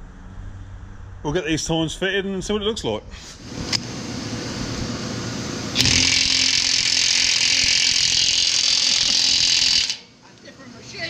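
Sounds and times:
impact wrench hammering: 5.8s - 10.0s.

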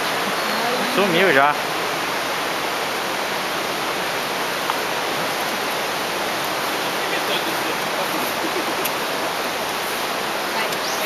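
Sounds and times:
river rushing: 0.0s - 11.0s.

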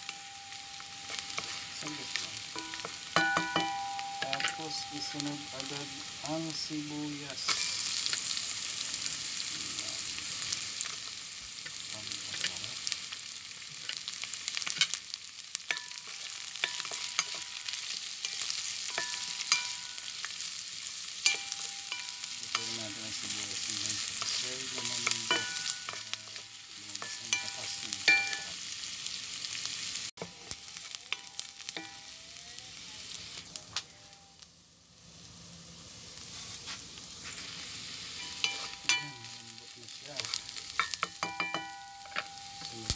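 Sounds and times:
onion and garlic sizzling in oil: 0.0s - 42.9s
wooden spatula scraping a pan: 36.2s - 37.6s.

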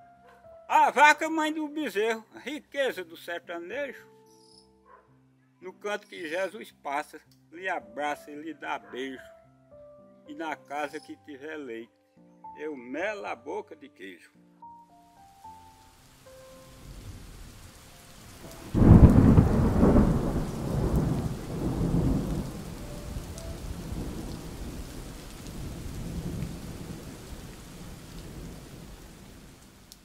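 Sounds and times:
rain hissing: 15.0s - 30.0s
thunder rumbling: 18.4s - 29.6s.

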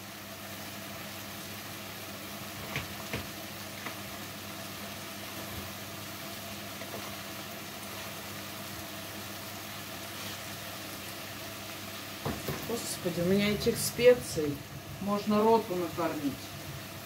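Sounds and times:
food frying sizzle: 0.0s - 17.0s
constant low hum: 0.1s - 17.0s.

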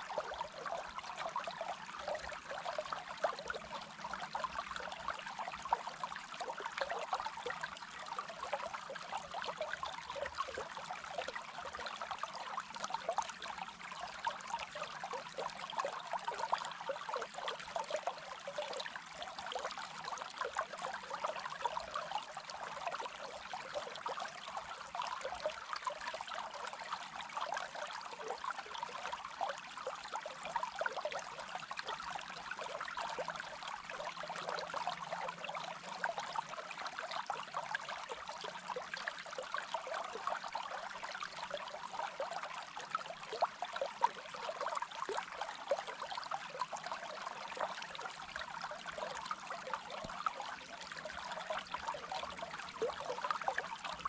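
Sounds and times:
stream gurgling over stones: 0.0s - 54.0s.

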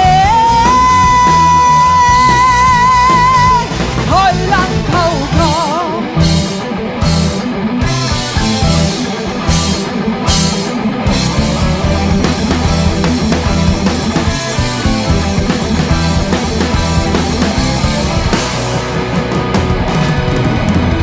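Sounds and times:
female singer: 0.0s - 6.2s
rock band playing: 0.0s - 21.0s.

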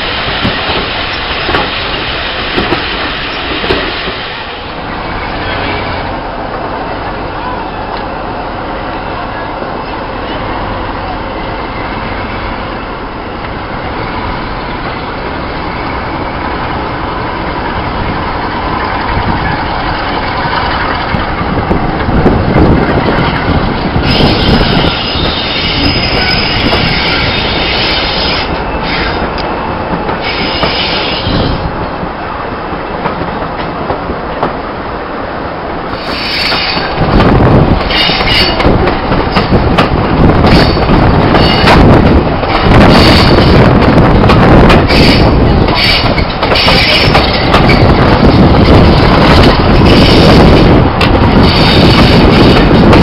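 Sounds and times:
diesel locomotive engine: 0.0s - 53.0s
train wheels rumbling on rails: 0.0s - 53.0s
high wheel squeal: 24.0s - 31.6s, 35.9s - 37.0s, 37.9s - 38.7s, 44.9s - 48.8s.

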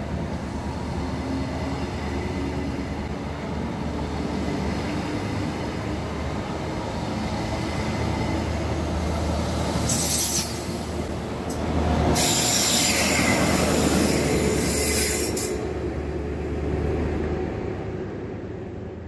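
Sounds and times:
train low drone: 0.0s - 19.0s
wheels squealing on rail: 9.8s - 10.8s, 12.0s - 15.7s.

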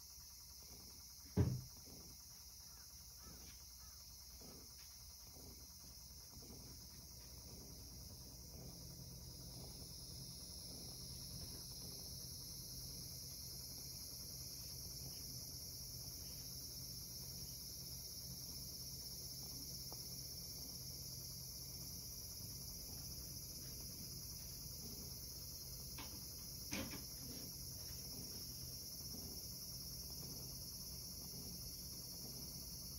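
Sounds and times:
cicadas singing: 0.0s - 32.9s
short knock: 1.3s - 1.7s.

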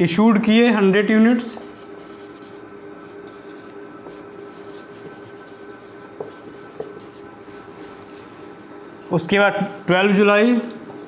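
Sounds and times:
steady background hum: 0.0s - 11.0s
marker pen writing on whiteboard: 1.5s - 8.3s, 10.6s - 11.0s.

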